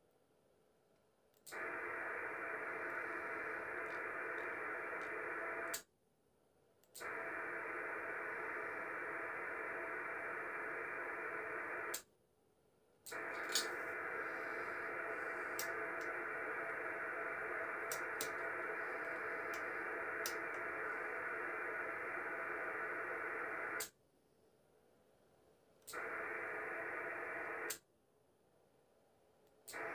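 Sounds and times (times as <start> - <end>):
radio receiver hiss and static: 1.5 - 5.8, 7.0 - 12.0, 13.1 - 23.9, 25.9 - 27.8
faint clicks: 15.5 - 16.2, 17.8 - 20.7.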